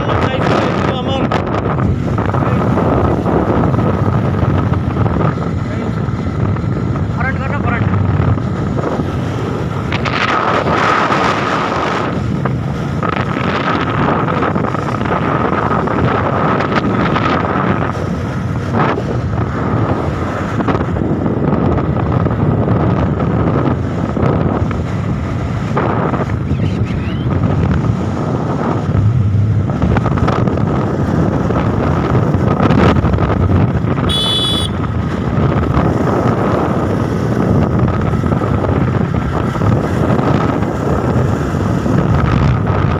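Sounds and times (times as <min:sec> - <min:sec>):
wind buffeting microphone: 0:00.0 - 0:42.9
motorcycle engine running: 0:22.0 - 0:42.9.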